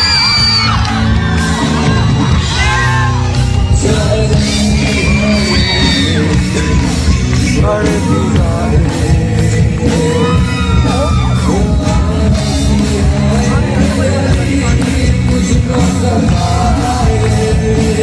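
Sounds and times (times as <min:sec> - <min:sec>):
fans shouting and yelling: 0:00.0 - 0:18.0
man singing with band: 0:03.7 - 0:18.0.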